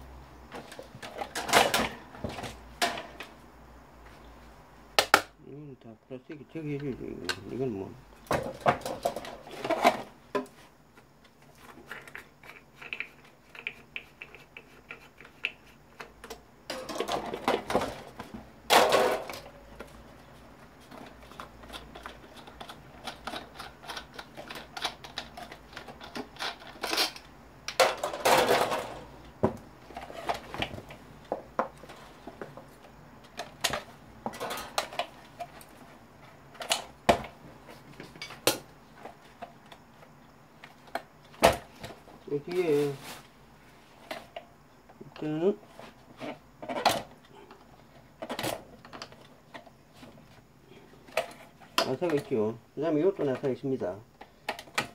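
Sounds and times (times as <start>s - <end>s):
plastic fan parts clattering: 0.5s - 3.3s, 6.2s - 10.6s, 11.6s - 20.0s, 20.8s - 35.8s, 51.0s - 52.5s.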